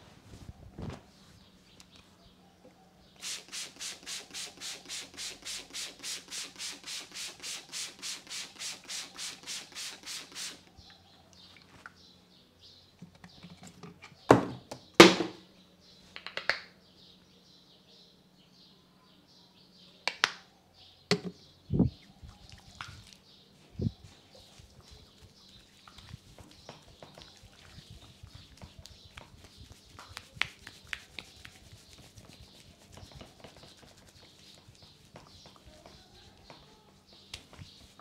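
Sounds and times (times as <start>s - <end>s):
hands rubbing head: 3.2s - 10.6s, 23.6s - 38.0s.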